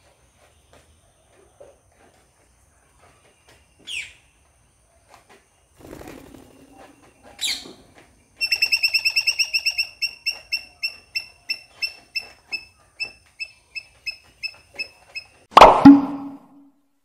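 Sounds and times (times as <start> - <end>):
small animal chirping: 8.4 - 15.4.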